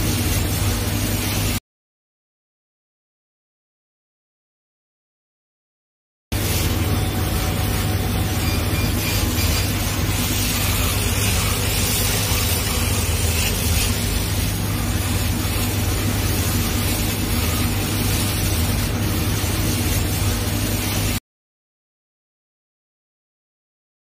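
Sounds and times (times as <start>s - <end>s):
laser cutter humming: 0.0s - 1.6s, 6.4s - 21.2s
airy hiss: 6.4s - 21.2s.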